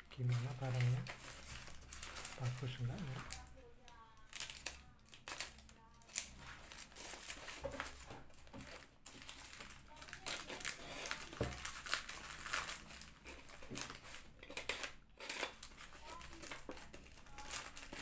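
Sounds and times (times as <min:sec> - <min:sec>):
plastic mailer crinkling: 0:00.1 - 0:03.6, 0:04.2 - 0:18.0.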